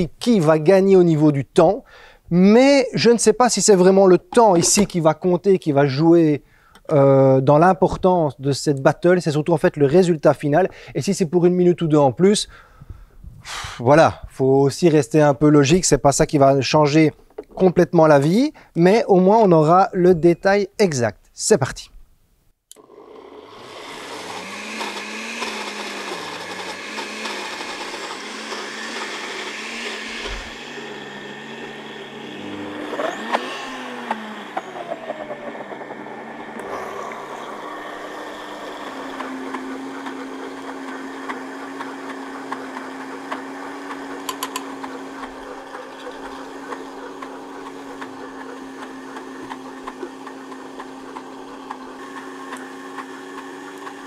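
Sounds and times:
blenders grinding peanuts: 22.8 - 54.0.

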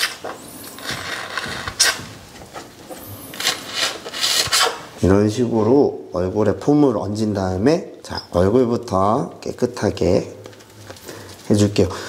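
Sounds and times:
pump bottle squirting foam: 0.0 - 5.0.

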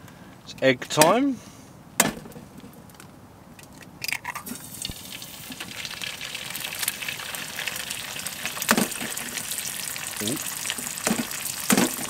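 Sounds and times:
sharp knock: 2.0 - 2.4
egg sizzling in oil: 4.4 - 12.0.

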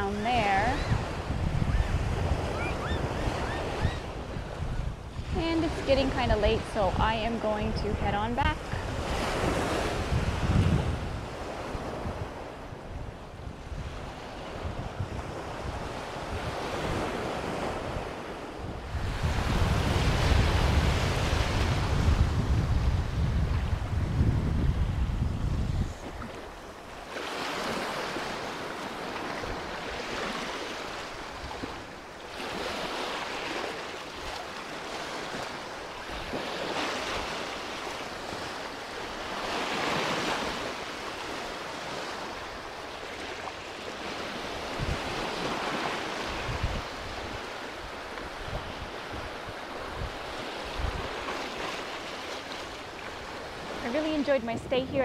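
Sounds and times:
wind buffeting microphone: 0.0 - 27.0, 44.3 - 55.0
small waves washing onto shore: 8.4 - 55.0.

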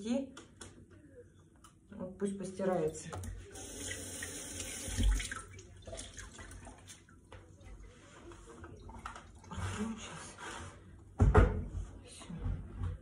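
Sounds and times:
water rushing into dishwasher: 3.6 - 7.1.

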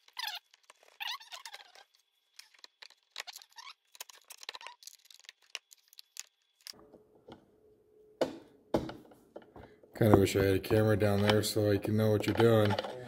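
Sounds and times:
metal parts clicking and rattling: 2.3 - 6.8.

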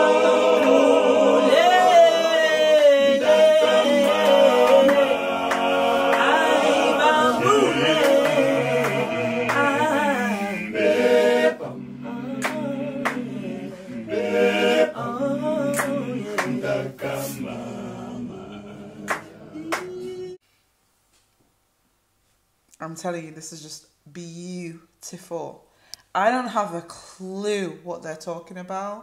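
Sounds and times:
male choir singing in harmony: 0.0 - 20.4.

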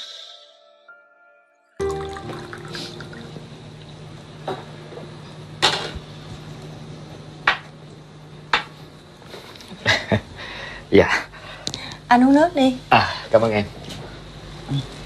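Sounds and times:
water pouring into a glass: 1.8 - 3.3.

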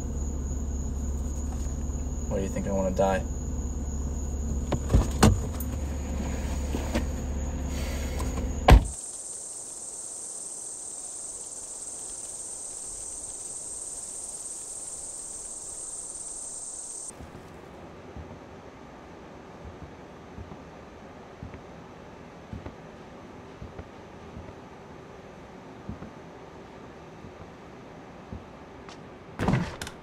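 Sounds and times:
high-pitched insect drone: 0.0 - 5.0, 5.8 - 17.1
crickets chirping: 0.0 - 17.6
low steady rumble: 0.0 - 18.1
quiet hiss: 0.0 - 22.2
loud thump: 8.4 - 9.0.

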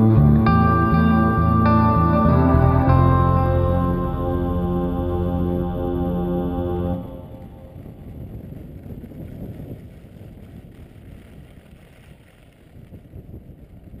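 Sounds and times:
wind buffeting microphone: 6.8 - 14.0
skis running on snow: 8.0 - 14.0.

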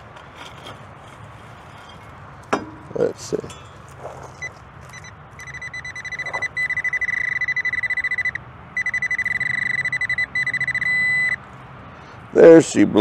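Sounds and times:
high electronic beeping: 4.4 - 11.4.

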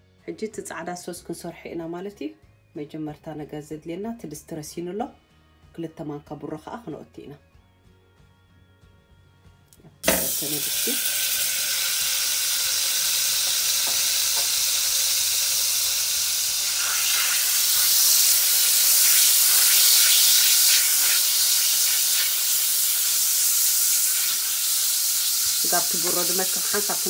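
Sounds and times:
butter sizzling in a pot: 10.0 - 27.0.

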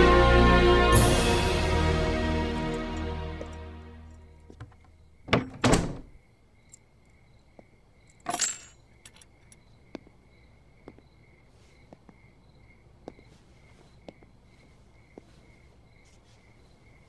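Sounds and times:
crickets chirping: 2.1 - 17.0
metallic jangling: 8.1 - 9.6.

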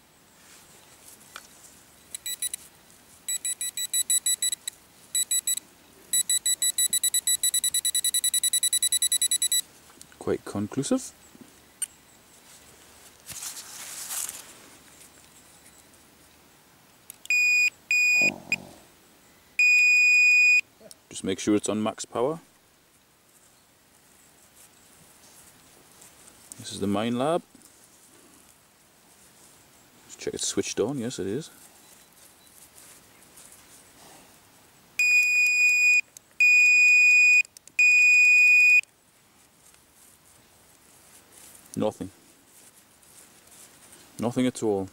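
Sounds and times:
rustle of handling: 0.0 - 6.2, 6.8 - 17.1, 22.8 - 34.8, 38.8 - 44.9
electronic beeps: 2.1 - 2.6, 3.3 - 9.6, 17.3 - 18.6.

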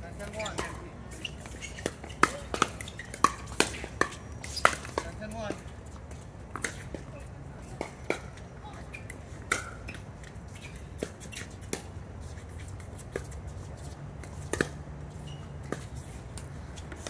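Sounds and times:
ball struck by paddles: 0.3 - 5.6.

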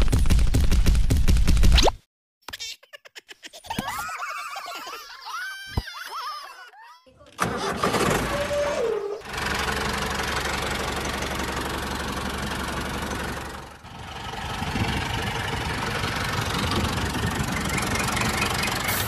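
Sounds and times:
tractor engine chugging: 7.4 - 19.0.

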